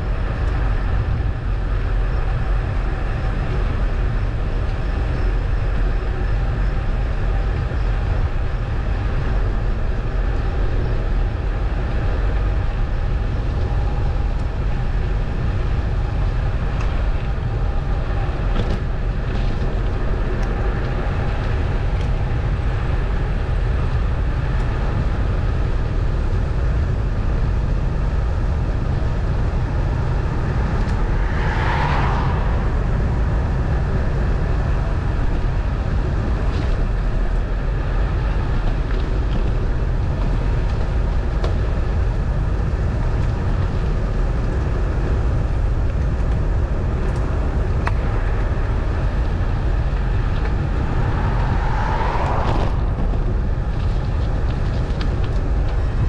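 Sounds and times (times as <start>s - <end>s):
vehicle engine and road rumble: 0.0s - 56.0s.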